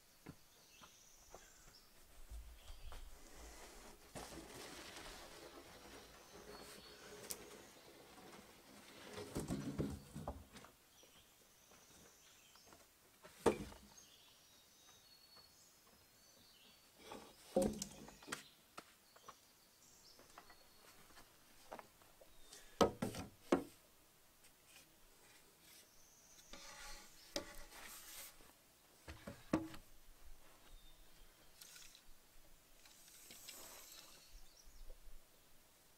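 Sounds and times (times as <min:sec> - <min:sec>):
wood scraping: 0:02.7 - 0:10.6, 0:26.4 - 0:28.5.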